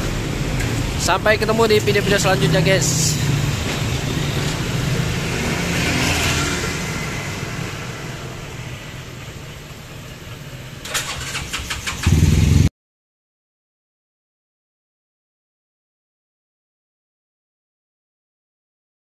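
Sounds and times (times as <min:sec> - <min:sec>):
motorcycle engine running: 0:10.9 - 0:12.7.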